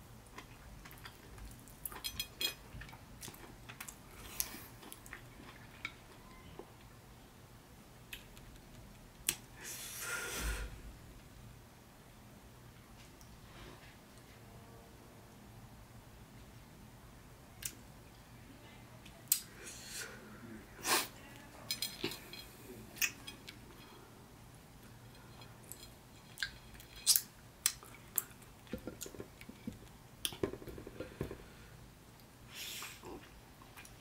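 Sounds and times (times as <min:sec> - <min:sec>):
chewing: 0:00.3 - 0:06.2, 0:24.8 - 0:30.4.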